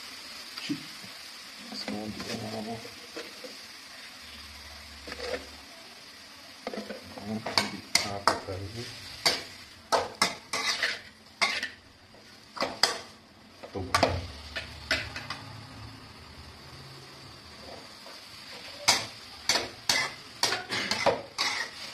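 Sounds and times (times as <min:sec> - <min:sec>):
faint sizzle: 0:00.0 - 0:21.9
metal spatula scraping wok: 0:05.0 - 0:05.6, 0:06.6 - 0:13.2, 0:14.4 - 0:15.5, 0:18.4 - 0:21.9.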